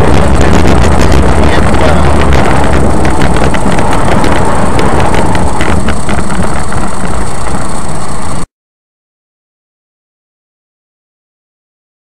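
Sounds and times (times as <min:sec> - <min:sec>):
car engine and road noise: 0:00.0 - 0:08.5.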